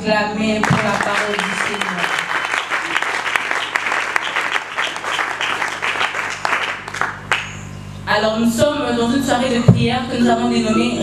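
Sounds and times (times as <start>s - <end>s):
congregation applauding: 0.6s - 7.6s.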